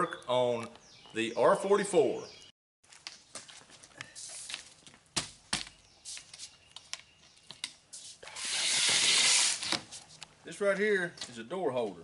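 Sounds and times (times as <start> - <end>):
loud hiss: 8.2 - 9.6.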